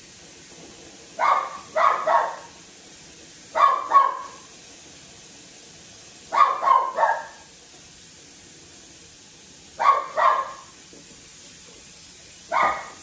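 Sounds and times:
dog barking: 1.2s - 2.5s, 3.6s - 4.4s, 6.3s - 7.4s, 9.8s - 10.7s, 12.5s - 13.0s.

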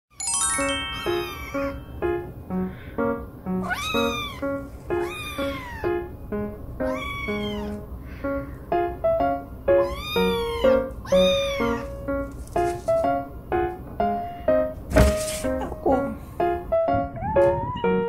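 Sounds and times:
light background music: 0.2s - 18.0s
kitten meowing: 1.0s - 1.8s, 3.6s - 6.1s, 6.8s - 7.9s, 9.7s - 12.1s.

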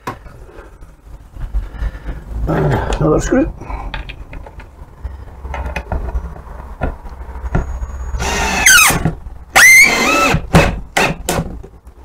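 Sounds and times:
cordless drill driving screw: 8.2s - 11.2s.

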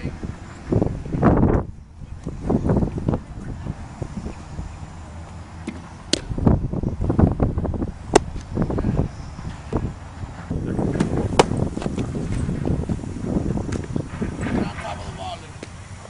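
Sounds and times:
wind buffeting microphone: 0.0s - 16.0s
sharp cracks: 5.6s - 6.4s.

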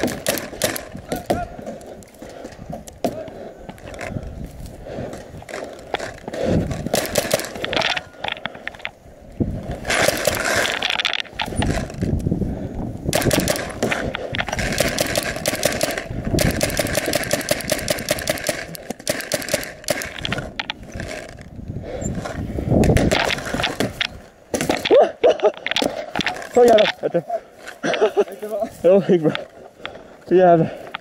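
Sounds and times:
paintball markers firing: 0.0s - 1.9s, 5.5s - 8.9s, 9.8s - 12.2s, 13.1s - 21.4s.

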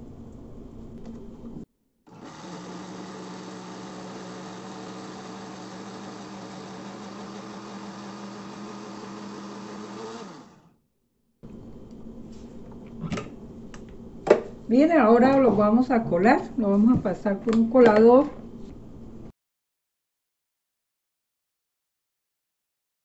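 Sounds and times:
blender motor running: 2.1s - 10.8s.

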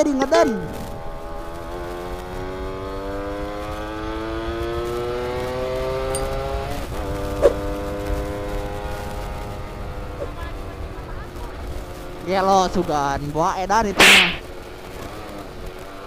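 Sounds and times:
two-stroke motorcycle engine revving: 0.0s - 12.9s
sharp crack: 13.9s - 14.5s.

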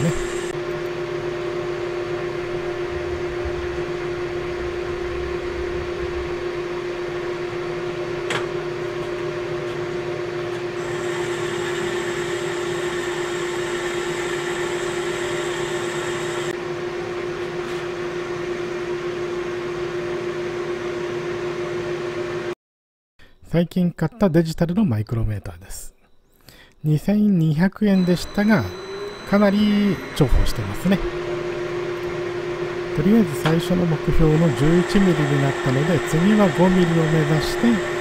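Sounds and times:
metal lathe humming: 0.0s - 1.0s, 10.8s - 16.6s, 27.9s - 38.0s.

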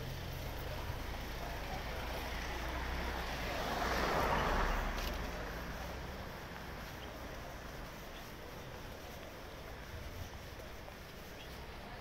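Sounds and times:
vehicle passing: 0.0s - 9.0s
steady low traffic rumble: 0.0s - 12.0s.

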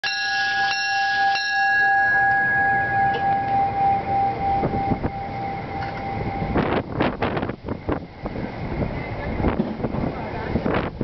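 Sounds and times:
train door chimes: 0.0s - 7.6s.

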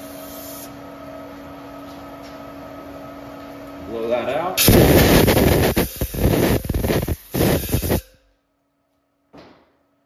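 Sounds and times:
air blow gun hissing: 4.6s - 8.1s.

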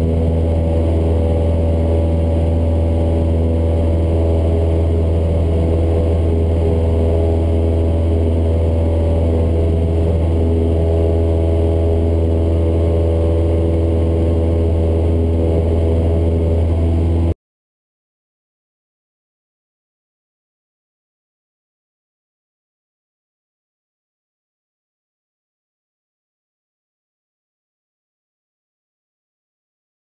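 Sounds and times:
plane engine and propeller drone: 0.0s - 17.4s.

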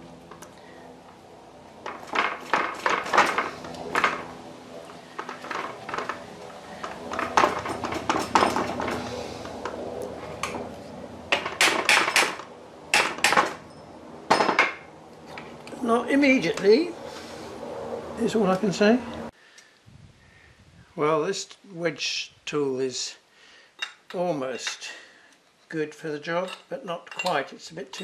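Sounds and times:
steel tool clinking on gears: 26.4s - 28.0s.

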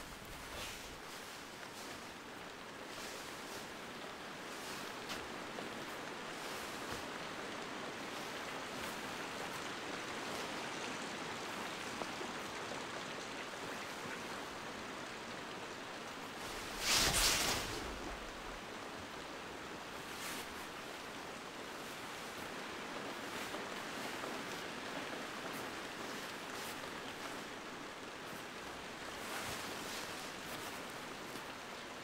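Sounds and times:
background hiss: 0.0s - 32.0s
whoosh: 16.7s - 18.4s.

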